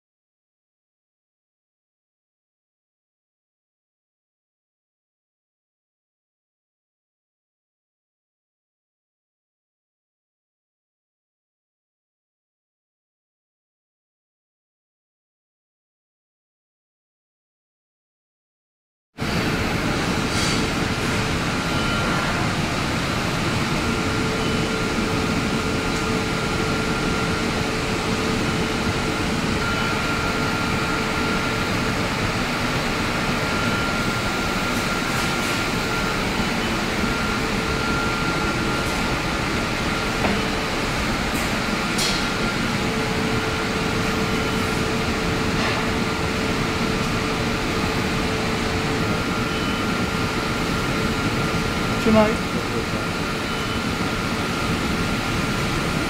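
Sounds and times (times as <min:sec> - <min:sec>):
air-handling machinery hum: 0:19.2 - 0:56.0
mid-pitched whine: 0:19.2 - 0:56.0.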